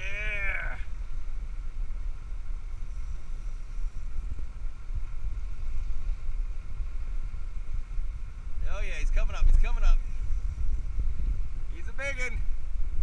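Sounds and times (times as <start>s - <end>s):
person shouting: 0.0s - 0.9s
boat engine rumble: 0.0s - 13.0s
wind on microphone: 0.0s - 13.0s.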